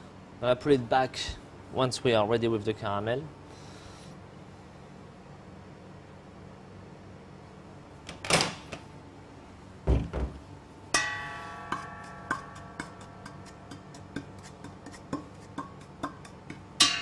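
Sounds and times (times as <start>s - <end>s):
ringing metal clang: 11.0s - 13.5s, 16.8s - 17.0s
wooden spatula tapping metal pot: 11.7s - 17.0s
utensil scraping: 11.8s - 16.6s.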